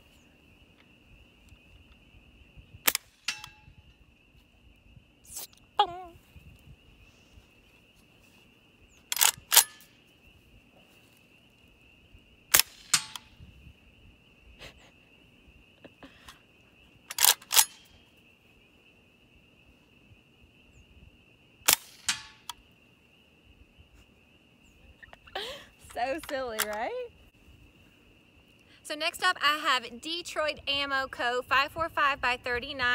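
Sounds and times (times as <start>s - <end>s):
suppressed rifle shots: 2.8s - 3.6s, 12.5s - 13.4s, 21.7s - 22.5s.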